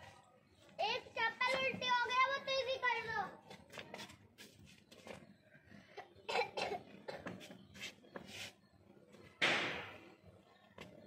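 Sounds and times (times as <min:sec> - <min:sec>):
person coughing: 0:06.0 - 0:07.4.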